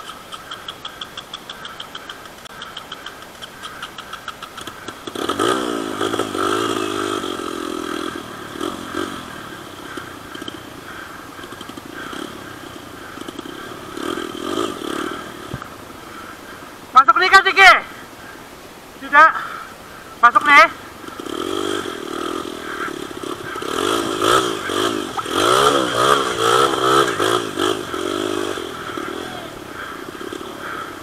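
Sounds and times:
dirt bike engine revving: 4.6s - 15.7s, 20.4s - 31.0s.

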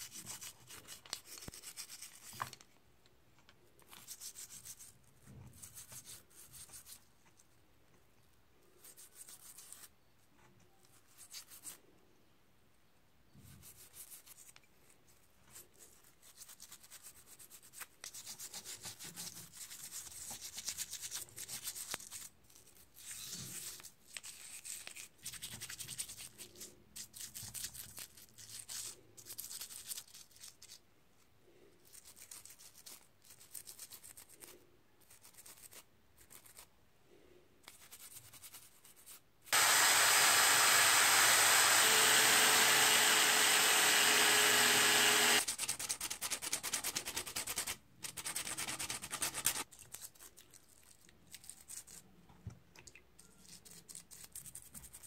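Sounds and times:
electric drill running: 39.6s - 45.4s.

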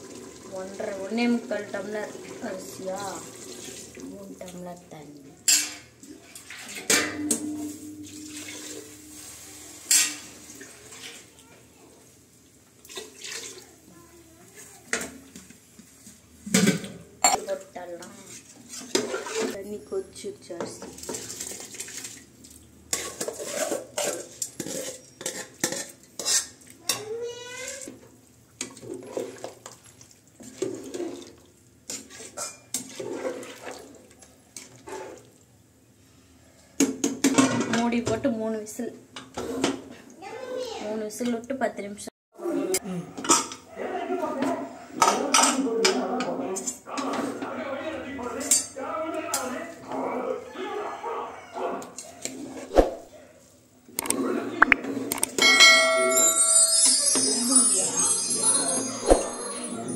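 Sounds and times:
water splashing into a pot: 0.0s - 4.5s, 5.4s - 11.6s, 12.4s - 13.9s, 20.8s - 26.8s, 28.6s - 35.4s
metal ladle clinking and scraping: 6.5s - 10.4s.

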